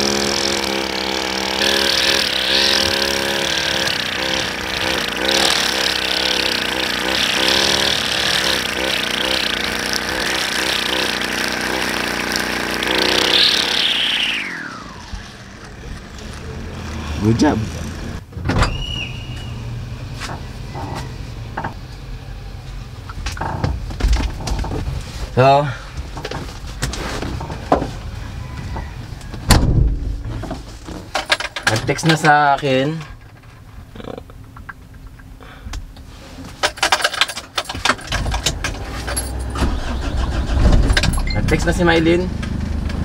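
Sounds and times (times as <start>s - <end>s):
car engine starting and running: 0.0s - 43.0s
keys jangling: 39.0s - 39.6s.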